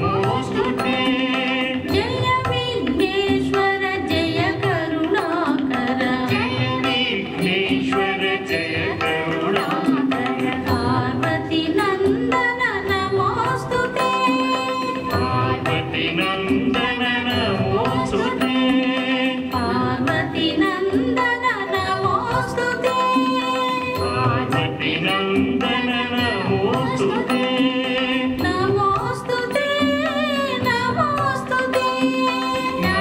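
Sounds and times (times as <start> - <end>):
hand drum rhythm: 0.0 - 33.0
person singing: 0.0 - 33.0.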